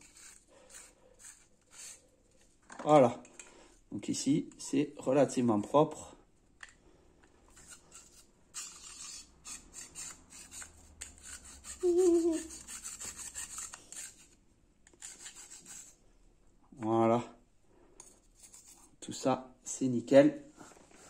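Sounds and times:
brush scrubbing inside plastic tube: 0.0s - 2.5s, 7.5s - 14.4s, 15.0s - 16.0s.

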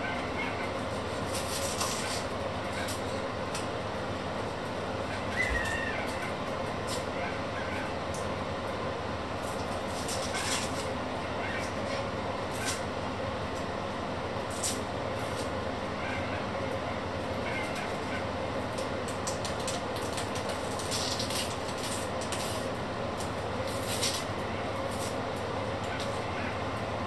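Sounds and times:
crinkling rustles of peeling: 0.9s - 3.1s, 18.8s - 25.2s.

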